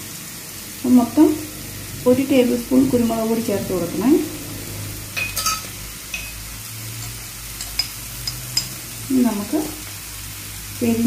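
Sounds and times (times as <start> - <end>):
food sizzling in frying pan: 0.0 - 11.0
low steady hum: 0.7 - 11.0
spatula scraping pan: 5.0 - 9.0.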